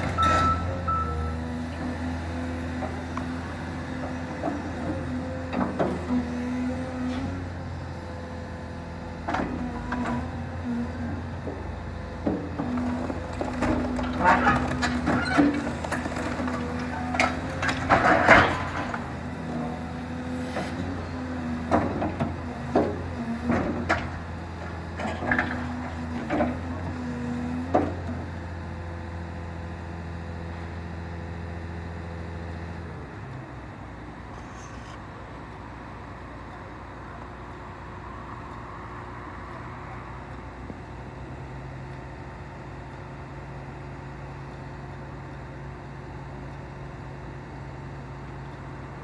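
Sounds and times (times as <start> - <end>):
excavator diesel engine: 0.0 - 49.0.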